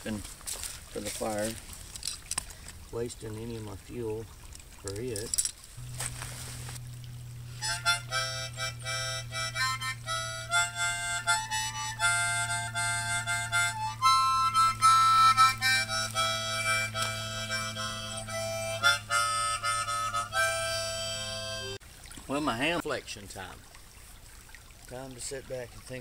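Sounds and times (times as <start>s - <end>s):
low drone: 5.8s - 21.8s
harmonica tune: 7.4s - 21.8s.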